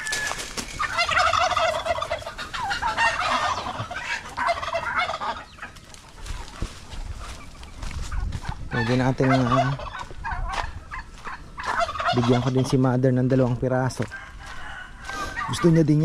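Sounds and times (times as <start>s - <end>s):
turkey gobbling: 0.0s - 16.0s.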